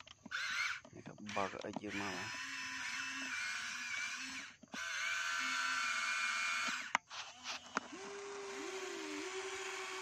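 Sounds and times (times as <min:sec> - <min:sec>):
sharp clicks: 0:00.0 - 0:02.3
electric motors whining: 0:00.0 - 0:10.0.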